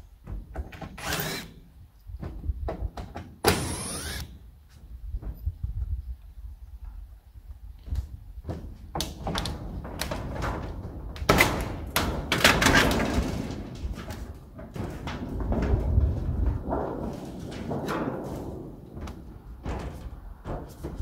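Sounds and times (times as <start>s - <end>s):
sheet metal scraping and rattling: 9.4s - 21.0s.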